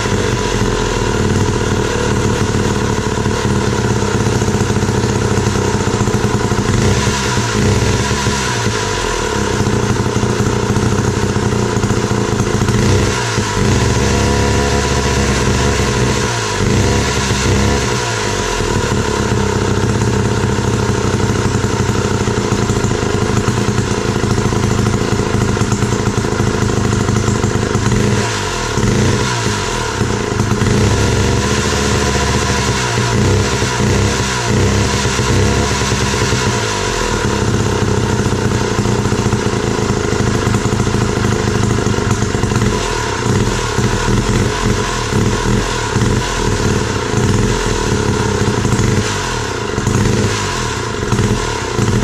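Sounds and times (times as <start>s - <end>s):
two-stroke saw engine running: 0.0s - 52.0s.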